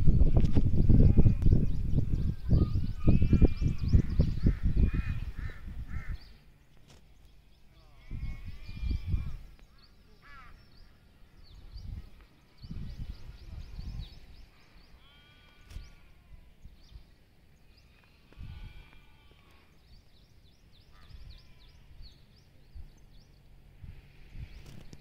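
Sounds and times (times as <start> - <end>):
gusts of low rumble: 0.0 - 6.4.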